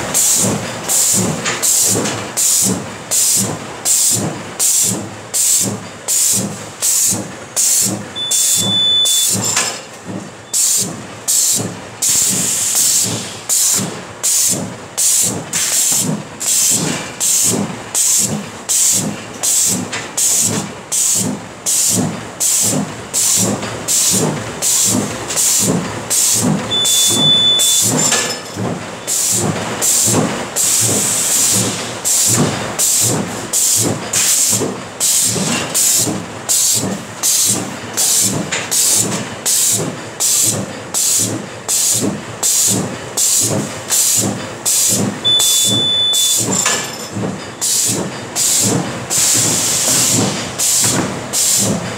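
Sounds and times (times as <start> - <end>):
mechanical clatter: 0.0 - 51.9
machine hissing bursts: 0.2 - 9.5, 10.5 - 28.4, 33.6 - 46.8, 47.6 - 51.7
short high beep: 8.2 - 9.6, 26.7 - 28.2, 45.2 - 46.6.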